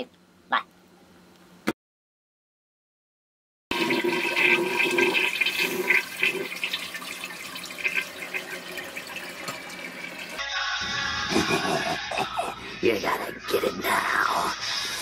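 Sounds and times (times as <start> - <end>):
toilet flushing: 3.7 - 10.4.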